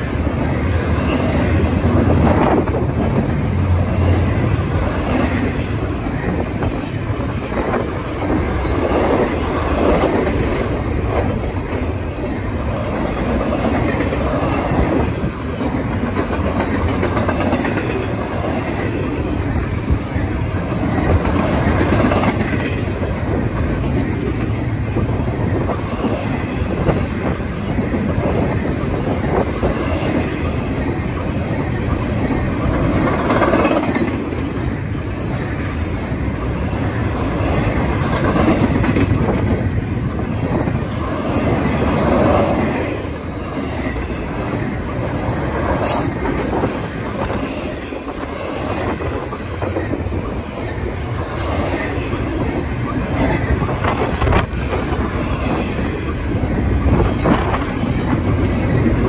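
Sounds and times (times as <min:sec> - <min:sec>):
train cars rumbling: 0:00.0 - 0:59.0.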